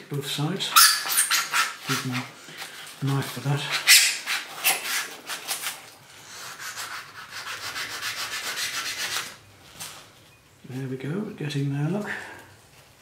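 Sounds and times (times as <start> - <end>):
knife scraping foam: 3.0 - 9.4.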